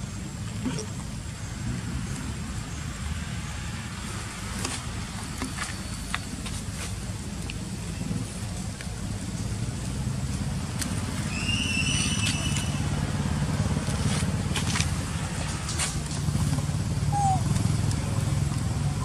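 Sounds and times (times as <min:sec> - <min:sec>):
motorcycle engine rumbling: 0:00.0 - 0:19.0
short high whistle-like call: 0:11.3 - 0:12.8.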